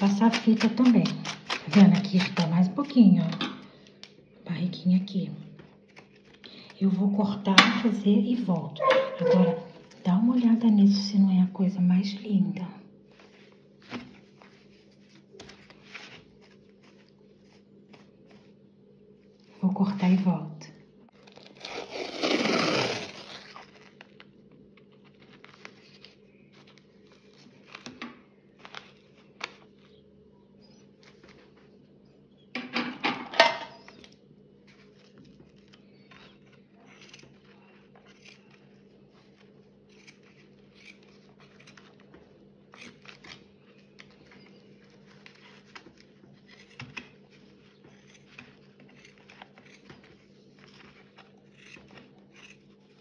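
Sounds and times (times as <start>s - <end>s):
scissors snipping: 0.0s - 3.4s, 36.9s - 37.4s, 38.0s - 38.6s, 39.9s - 42.0s, 47.9s - 50.1s, 50.7s - 52.6s
tape ripping off roll: 21.2s - 24.1s.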